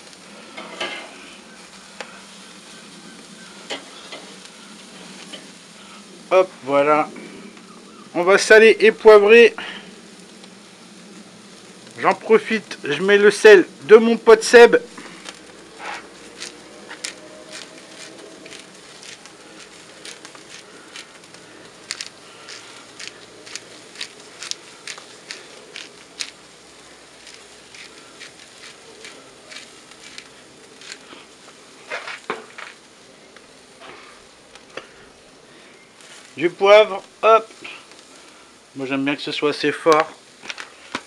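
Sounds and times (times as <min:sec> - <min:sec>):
burgers sizzling on charcoal grill: 0:00.0 - 0:41.0
sharp crackles and pops: 0:00.0 - 0:41.0.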